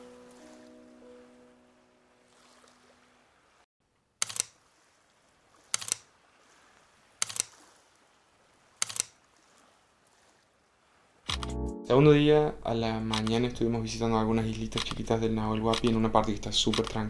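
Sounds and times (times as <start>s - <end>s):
camera shutter clicks: 4.2s - 4.5s, 5.7s - 6.1s, 7.2s - 7.5s, 8.8s - 9.2s, 11.3s - 11.6s, 13.1s - 13.6s, 14.6s - 15.0s, 15.7s - 16.0s, 16.6s - 17.0s.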